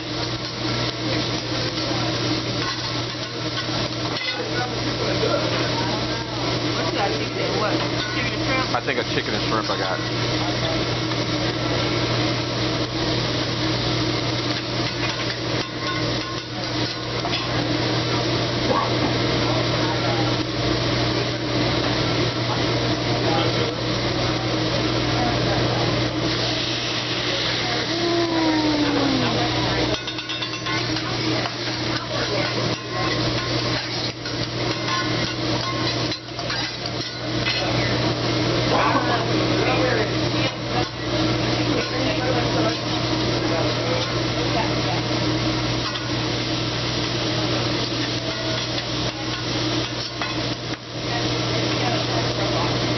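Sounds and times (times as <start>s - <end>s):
food frying: 0.0s - 52.9s
seafood sizzling on a griddle: 0.0s - 52.9s
metal spatula scraping a griddle: 30.0s - 37.7s.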